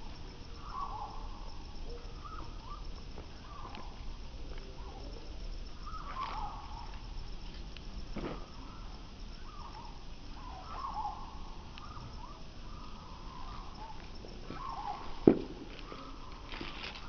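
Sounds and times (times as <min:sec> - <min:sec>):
short warbling calls: 0:08.5 - 0:15.2.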